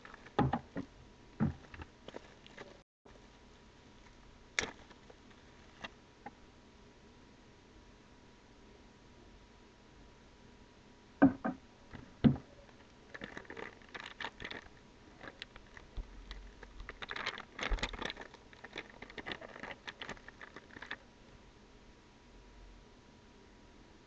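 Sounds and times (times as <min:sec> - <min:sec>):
plastic bag crinkling: 0:00.0 - 0:00.6, 0:01.6 - 0:02.8, 0:12.6 - 0:21.1.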